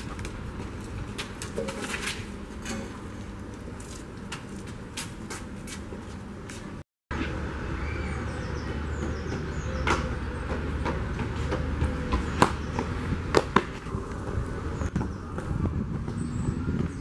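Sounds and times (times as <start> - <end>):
outdoor noise: 0.0 - 17.0
running footsteps on stone: 9.0 - 17.0.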